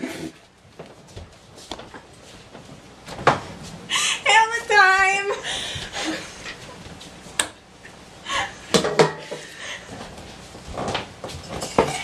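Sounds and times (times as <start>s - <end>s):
metal bowl and utensils clattering: 11.4s - 12.0s.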